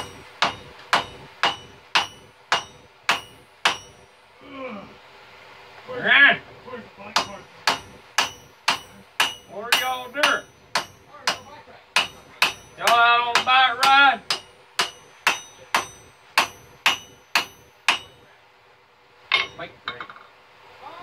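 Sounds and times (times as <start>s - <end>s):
hammer forging steel on anvil: 0.0s - 4.2s, 7.0s - 18.4s, 19.3s - 20.3s.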